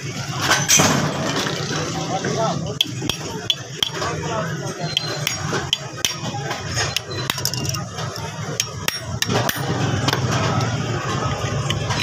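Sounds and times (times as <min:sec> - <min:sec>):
hammer tapping on metal: 0:02.8 - 0:04.1, 0:04.9 - 0:07.8.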